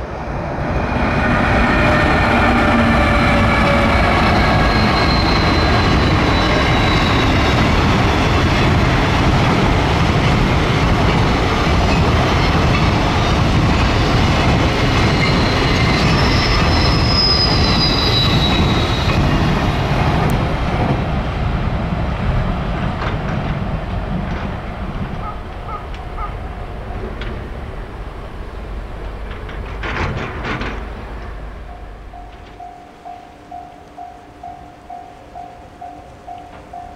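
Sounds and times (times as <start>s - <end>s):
train wheels rumbling on track: 0.0s - 36.9s
high wheel squeals: 0.8s - 8.2s, 14.9s - 19.8s.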